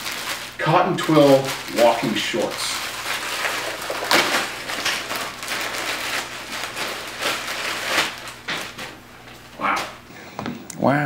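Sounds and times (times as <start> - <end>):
packaging and fabric rustling: 0.0 - 10.0.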